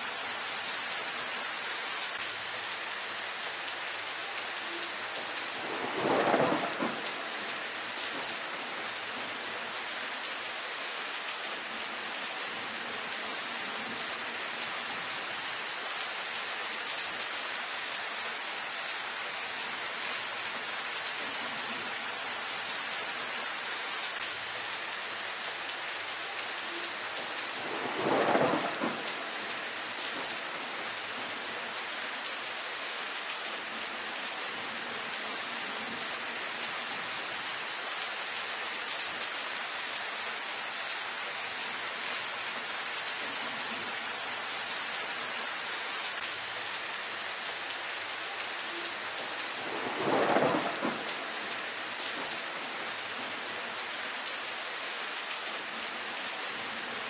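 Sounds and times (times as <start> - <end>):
rain on foliage: 0.0 - 57.0
thunder clap: 5.6 - 7.5, 27.6 - 29.5, 49.6 - 51.6.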